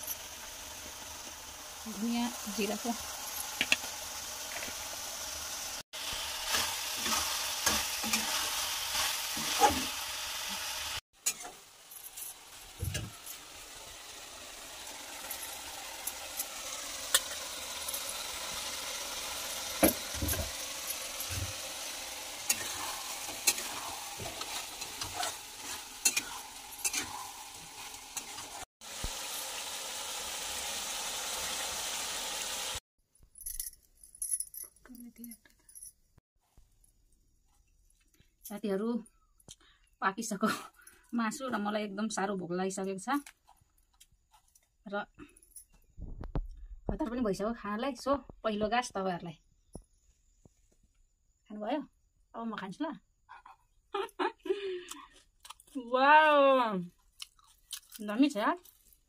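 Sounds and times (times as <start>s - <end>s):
curry sizzling in a pan: 0.0s - 32.8s
spoon scraping a pan: 11.2s - 13.1s, 22.4s - 28.6s.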